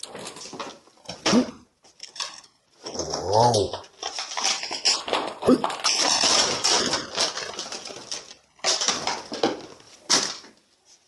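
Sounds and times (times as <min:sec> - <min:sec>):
blister packaging crinkling and tearing: 0:02.0 - 0:10.5.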